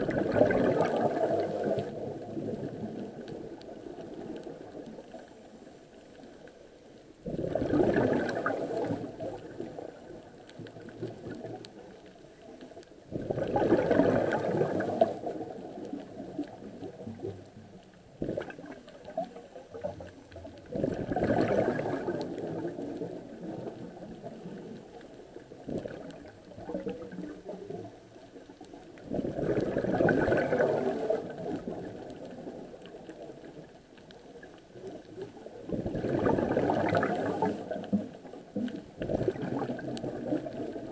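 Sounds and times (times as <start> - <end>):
underwater breath bubbling: 0.0 - 4.8, 7.2 - 11.7, 13.1 - 17.3, 18.1 - 19.9, 20.5 - 24.8, 25.4 - 27.7, 29.0 - 33.2, 34.9 - 40.9.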